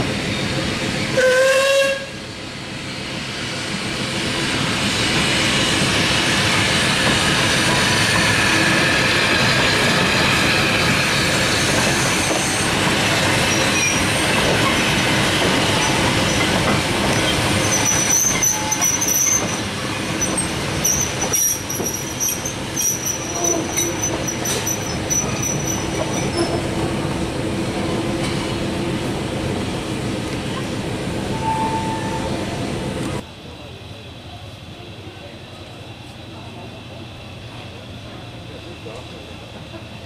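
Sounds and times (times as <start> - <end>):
steam train passing: 0.0 - 40.0
wheels squealing: 11.5 - 26.7.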